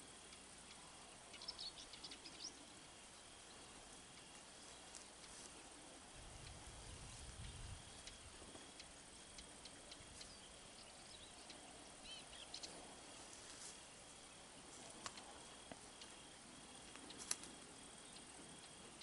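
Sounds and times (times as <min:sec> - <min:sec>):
small ticks and clicks: 0:00.0 - 0:02.7, 0:03.3 - 0:11.7, 0:12.3 - 0:19.0
faint high bird chirps: 0:00.6 - 0:05.4, 0:07.2 - 0:12.9.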